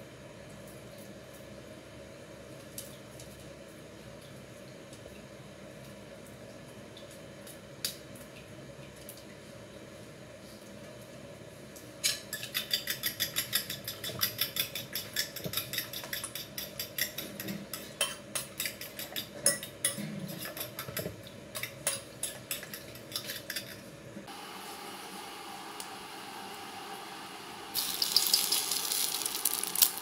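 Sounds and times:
utensil beating eggs in glass bowl: 0:12.5 - 0:19.3.

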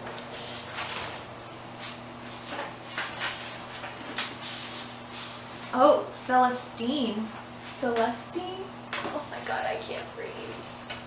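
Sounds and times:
paper rustling and crinkling: 0:00.0 - 0:05.8.

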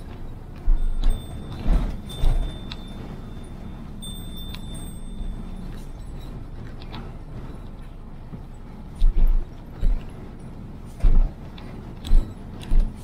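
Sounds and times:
road and engine rumble: 0:00.0 - 0:13.0
heavy low thumps: 0:11.0 - 0:13.0.

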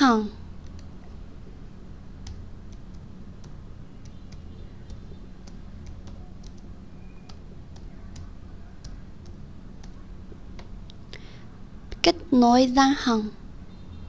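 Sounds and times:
steady low hum: 0:00.0 - 0:14.0
keyboard keys clicking: 0:00.6 - 0:01.2, 0:02.1 - 0:11.1.

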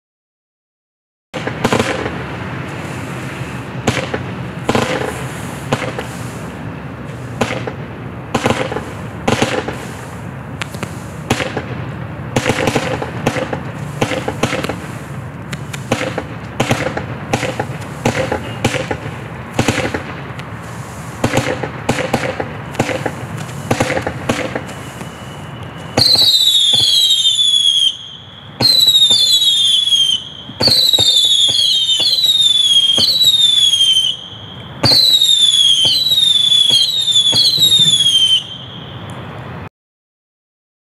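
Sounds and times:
firework cake firing shots: 0:01.4 - 0:02.4, 0:03.8 - 0:34.2, 0:34.8 - 0:38.5
loud shrieking firework whistles: 0:01.4 - 0:07.8, 0:12.4 - 0:20.0, 0:20.6 - 0:39.2.

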